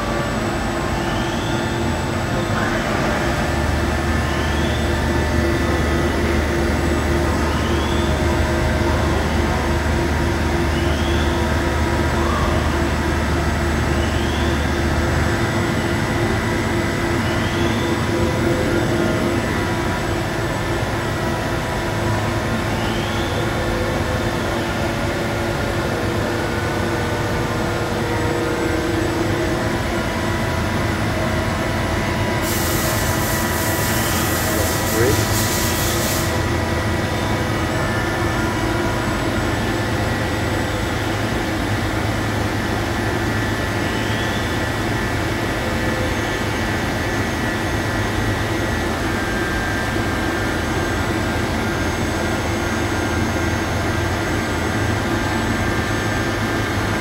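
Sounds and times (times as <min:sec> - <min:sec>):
deeper drone: 0:00.0 - 0:35.4
machine hum with whine: 0:00.0 - 0:57.0.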